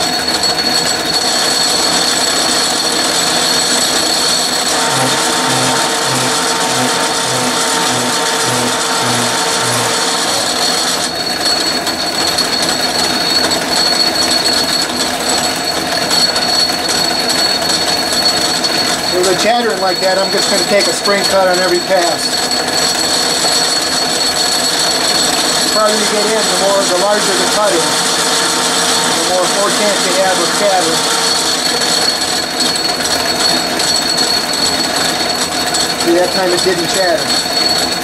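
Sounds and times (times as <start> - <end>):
lathe running: 0.0 - 38.0
steady tone: 4.6 - 11.2, 25.2 - 32.8
low pulsing: 4.7 - 11.2, 25.4 - 32.7.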